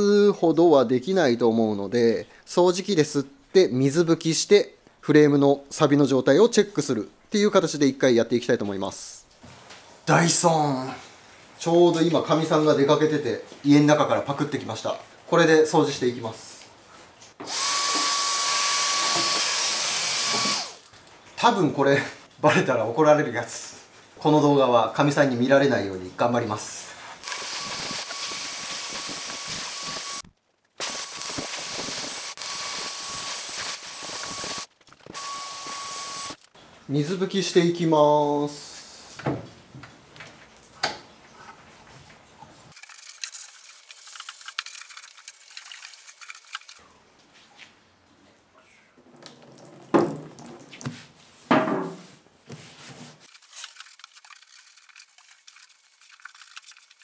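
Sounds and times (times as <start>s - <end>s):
handheld vacuum cleaner whining: 17.4s - 20.8s, 27.2s - 30.2s, 30.8s - 36.4s
liquid gushing from bottle: 42.7s - 46.8s, 53.3s - 57.0s.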